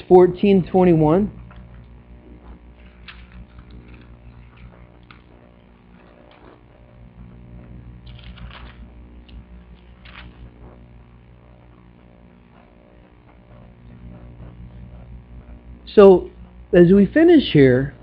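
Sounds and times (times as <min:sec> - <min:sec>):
low steady hum: 0:00.0 - 0:18.0
pages being turned: 0:02.8 - 0:05.3, 0:05.9 - 0:06.6, 0:08.0 - 0:10.5.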